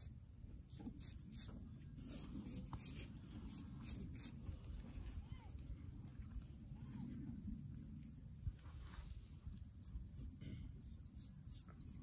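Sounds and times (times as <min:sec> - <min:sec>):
razor scraping stubble: 0:00.7 - 0:04.6.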